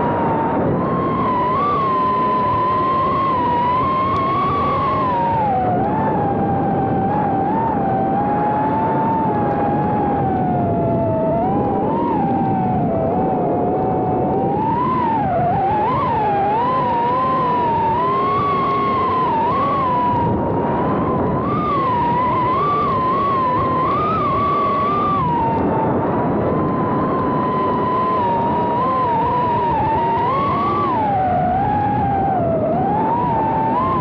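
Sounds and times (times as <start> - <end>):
drone propellers whining: 0.0 - 34.0.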